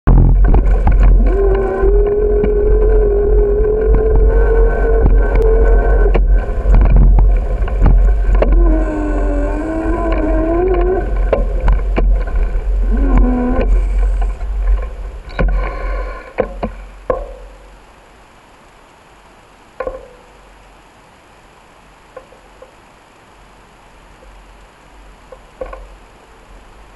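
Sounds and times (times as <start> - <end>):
bicycle knocks and rattles: 0.1 - 2.9, 4.8 - 8.6, 10.0 - 15.7, 16.3 - 17.8, 19.8 - 20.3, 25.3 - 26.0
wind rumble on microphone: 0.1 - 18.0
quiet hiss: 0.1 - 26.9.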